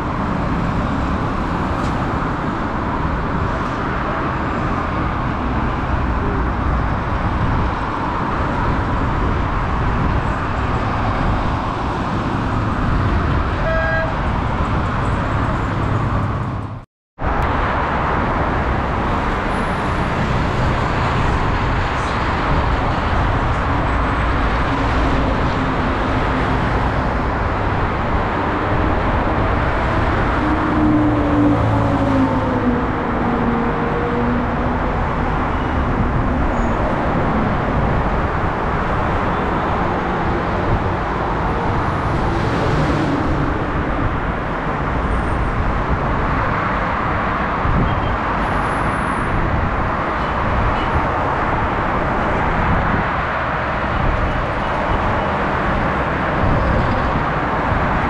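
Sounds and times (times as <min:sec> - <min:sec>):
highway traffic rumble: 0:00.0 - 0:58.0
vehicle horn toot: 0:13.6 - 0:14.2.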